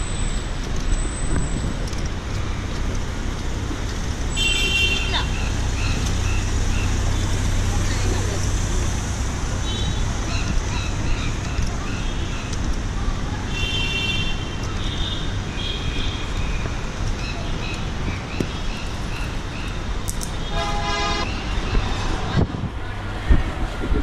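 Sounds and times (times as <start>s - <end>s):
city traffic noise: 0.0s - 24.0s
car horn tooting: 4.3s - 5.3s, 20.5s - 21.3s.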